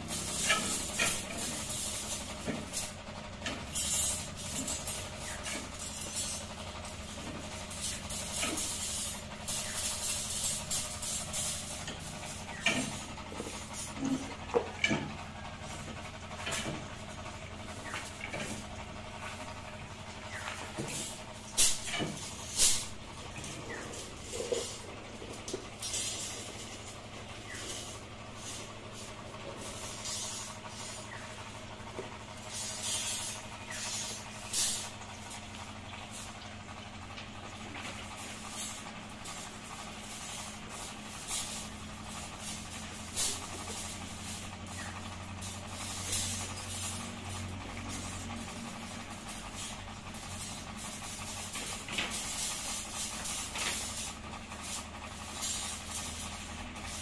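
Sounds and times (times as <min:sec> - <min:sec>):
steady low hum: 0:00.0 - 0:57.0
steel wire clinking and scraping: 0:00.0 - 0:57.0.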